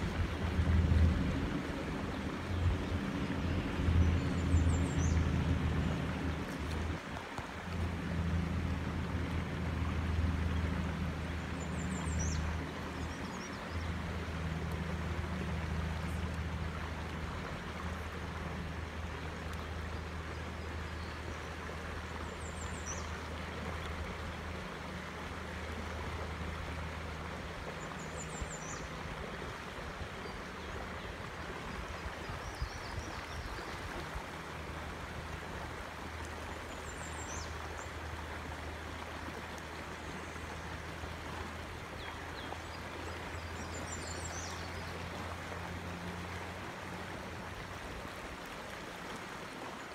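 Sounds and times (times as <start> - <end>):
low water rumble: 0.0 - 49.9
stream rushing over rocks: 0.0 - 49.9.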